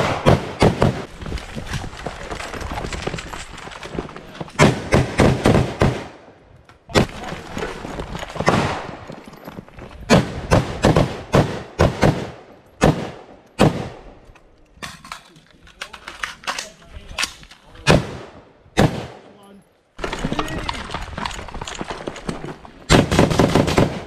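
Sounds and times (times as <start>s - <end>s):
rifle shots with echo: 0.0s - 1.1s, 4.6s - 7.1s, 8.4s - 9.0s, 10.1s - 14.2s, 17.8s - 19.3s, 22.9s - 24.0s.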